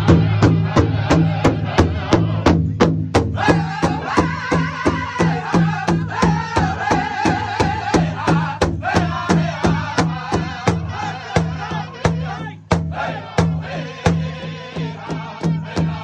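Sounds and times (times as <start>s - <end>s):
men singing high wavering phrases: 0.0s - 2.6s, 3.3s - 16.0s.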